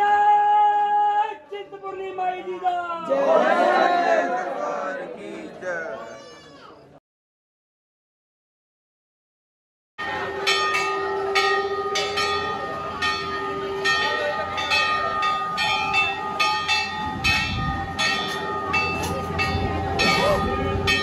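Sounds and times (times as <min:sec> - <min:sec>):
temple bells ringing: 0:10.0 - 0:21.0.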